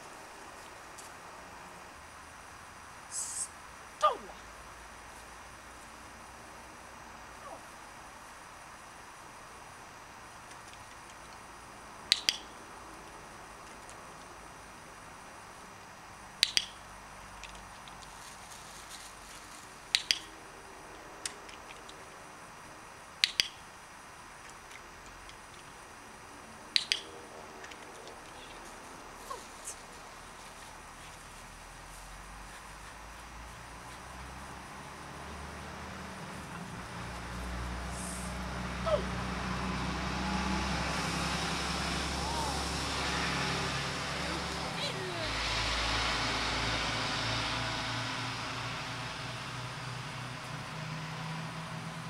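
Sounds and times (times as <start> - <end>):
clicker double click: 12.1 - 12.4, 16.4 - 16.8
vehicle engine humming: 23.8 - 52.0.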